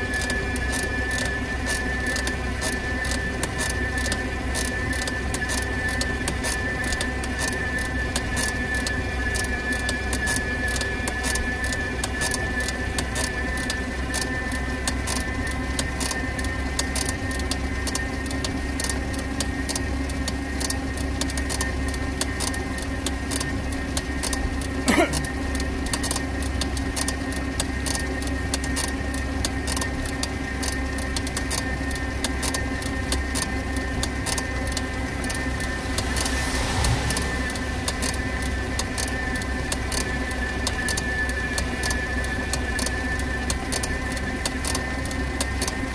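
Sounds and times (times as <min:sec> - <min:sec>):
tyre hiss on wet road: 0:34.8 - 0:40.1.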